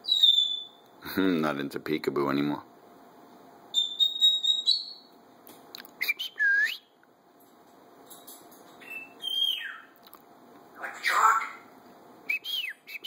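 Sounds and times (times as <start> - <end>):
parrot whistling: 0.0 - 0.8, 3.7 - 5.1, 8.8 - 10.0, 12.3 - 13.0.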